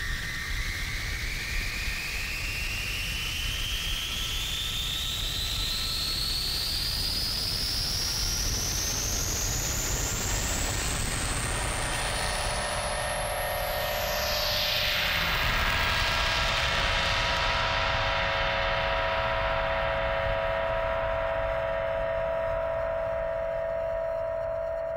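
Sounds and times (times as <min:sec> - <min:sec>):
low rumbling drone: 0:12.3 - 0:24.9.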